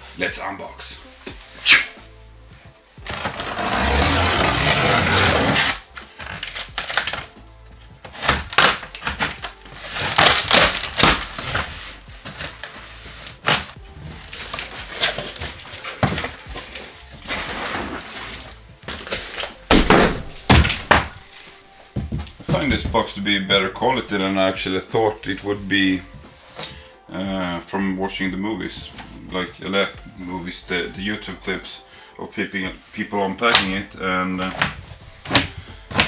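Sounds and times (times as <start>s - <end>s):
background music: 0.0s - 36.0s
packing tape ripping: 3.0s - 7.4s, 8.0s - 21.6s
cardboard knocks and rustles: 21.9s - 23.1s.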